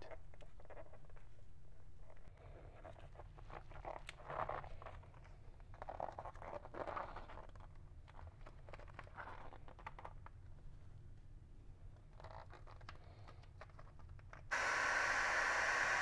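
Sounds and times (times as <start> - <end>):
low steady hum: 14.5 - 16.0.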